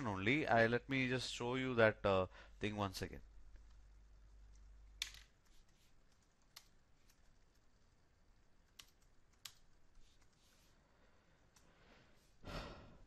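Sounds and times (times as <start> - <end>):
soft keyboard clicks: 4.5 - 7.8, 8.6 - 10.5.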